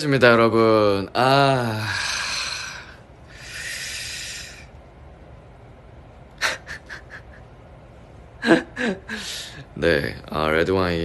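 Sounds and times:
man breathing out heavily: 1.7 - 4.7.

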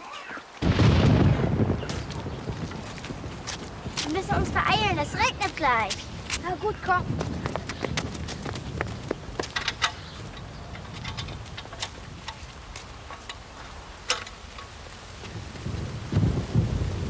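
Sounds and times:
rain falling: 0.0 - 17.0
low rumble of thunder: 0.6 - 17.0.

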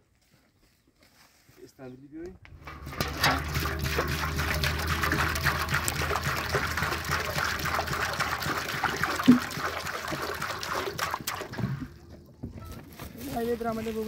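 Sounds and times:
steady low hum: 2.4 - 14.0
water pouring and splattering: 2.6 - 12.0.

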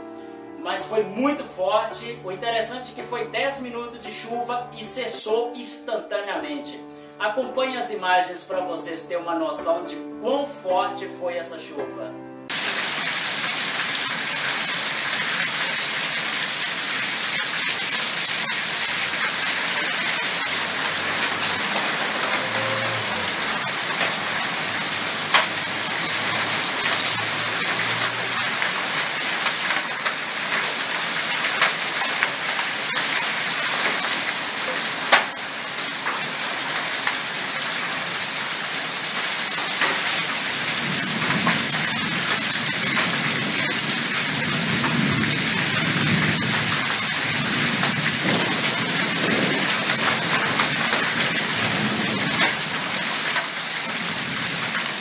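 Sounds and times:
heavy rain pouring: 12.5 - 55.0.

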